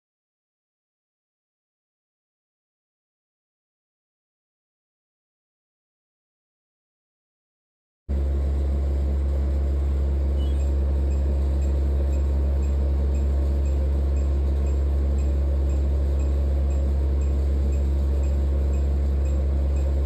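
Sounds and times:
laser machine humming: 8.1 - 20.0.

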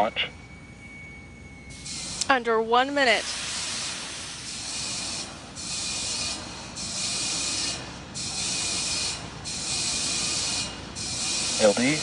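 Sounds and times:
rocket venting vapour hiss: 3.1 - 4.5.

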